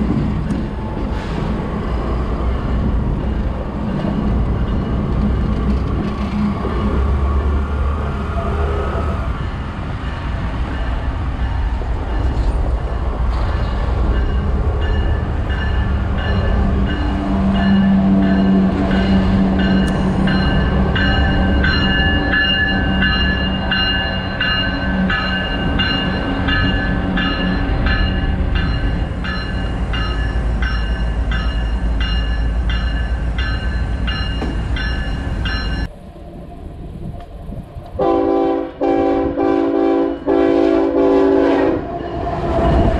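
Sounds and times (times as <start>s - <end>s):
freight train rumbling past: 0.0s - 42.9s
wheels clicking over rail joints: 2.2s - 7.5s.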